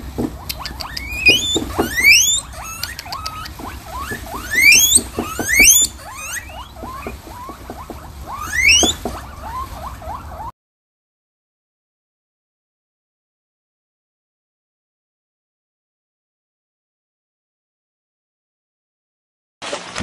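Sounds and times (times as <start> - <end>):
guinea pigs wheeking: 0.0 - 10.5
guinea pig chirps: 0.1 - 10.5.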